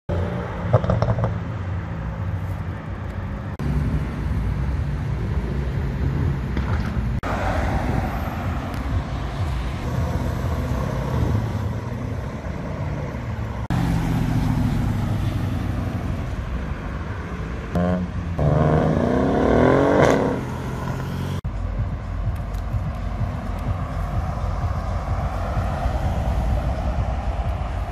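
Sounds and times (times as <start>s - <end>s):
car engines accelerating: 0.1s - 27.9s.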